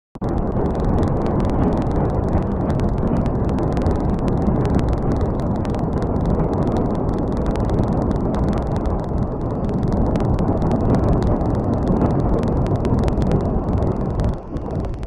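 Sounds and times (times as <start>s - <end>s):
rapid sharp cracks: 0.2s - 15.0s.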